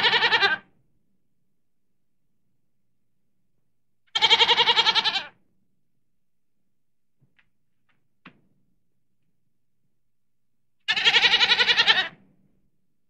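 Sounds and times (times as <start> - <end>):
goat bleating: 0.0 - 0.6, 4.2 - 5.3, 10.9 - 12.2.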